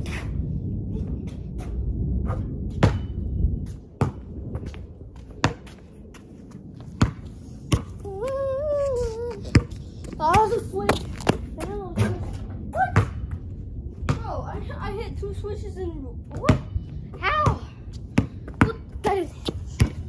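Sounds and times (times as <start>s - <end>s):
basketball bouncing on concrete: 4.0s - 6.2s, 7.0s - 8.0s, 9.5s - 12.2s, 17.4s - 20.0s.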